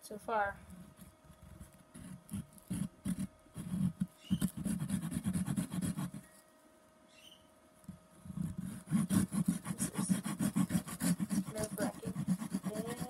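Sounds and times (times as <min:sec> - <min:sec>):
hand saw cutting wood: 0:08.8 - 0:13.0.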